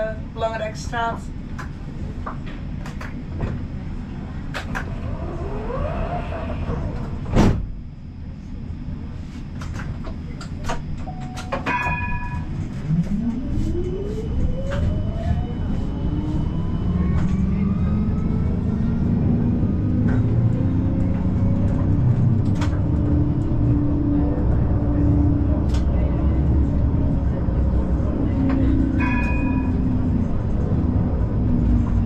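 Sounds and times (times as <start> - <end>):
tram rumble: 0.0 - 32.0
tram chime: 10.9 - 19.2, 26.4 - 32.0.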